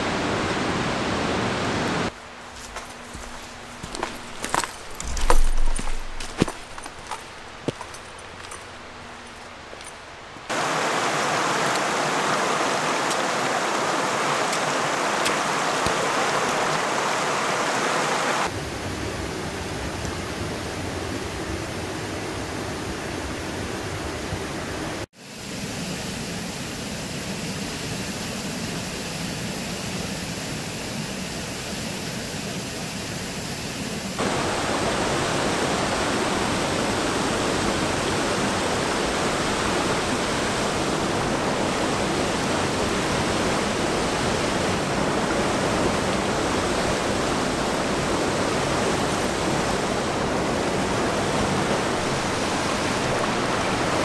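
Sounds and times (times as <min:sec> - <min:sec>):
water rushing from small waterfall: 0:00.0 - 0:02.2, 0:10.5 - 0:23.2, 0:34.2 - 0:54.0.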